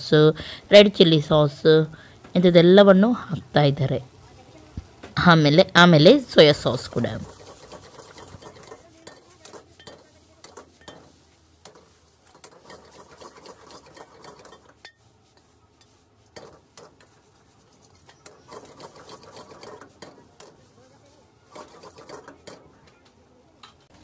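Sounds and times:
metal ladle scraping a steel wok: 6.2 - 22.9.

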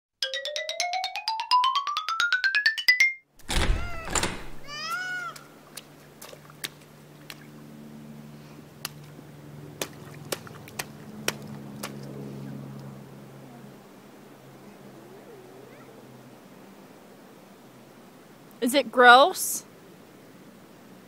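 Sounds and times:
child squealing: 3.8 - 5.5, 15.2 - 16.0
boots splashing in muddy puddle: 5.1 - 7.6, 9.8 - 12.2.

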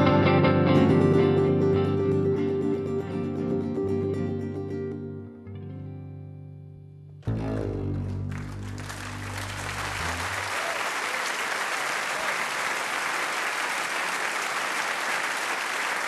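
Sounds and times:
guitar chord ringing out: 0.0 - 10.5
audience applauding: 8.0 - 16.0.

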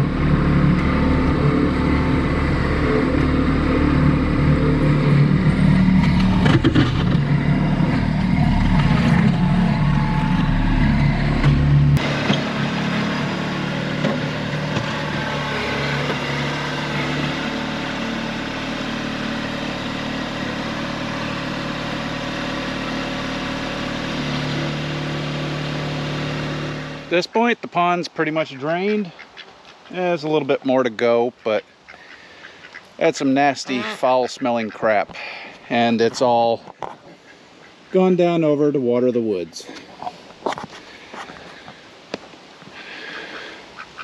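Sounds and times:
tractor diesel engine running: 0.0 - 27.9.

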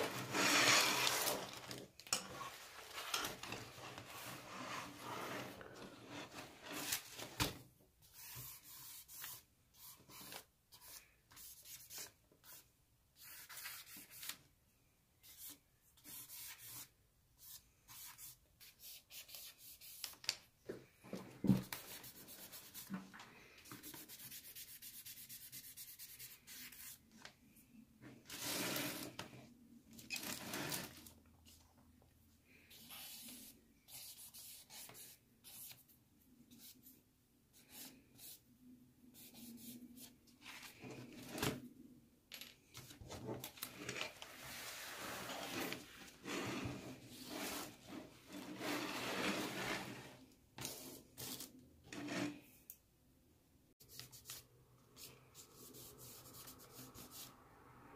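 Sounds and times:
charcoal scraping on paper: 0.0 - 1.4, 44.4 - 52.5.

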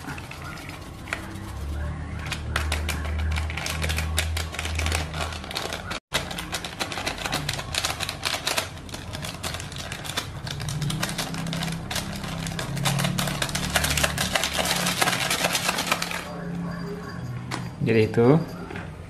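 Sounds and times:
low hum: 0.0 - 6.0
plastic sachet crinkling: 2.6 - 16.3.

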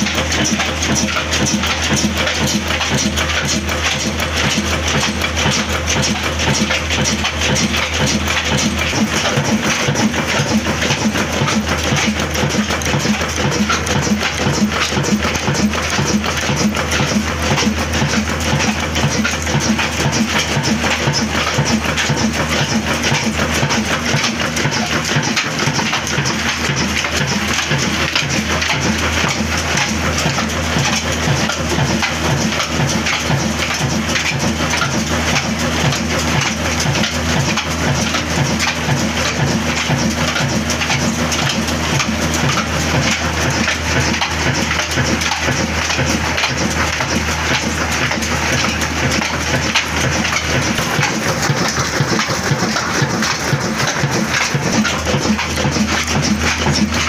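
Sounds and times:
diesel engine clattering: 0.0 - 57.0.

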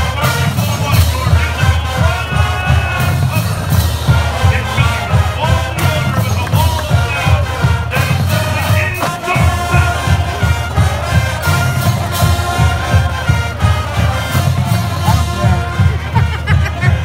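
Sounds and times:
marching band brass: 0.0 - 17.0
steady drum beat: 0.0 - 17.0.

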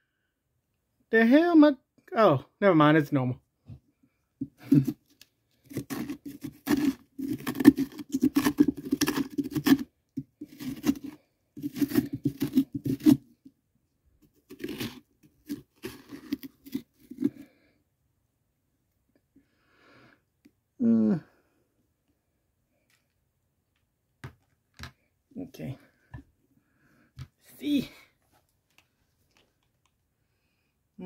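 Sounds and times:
scraping pumpkin pulp: 4.4 - 13.6, 14.2 - 17.7.

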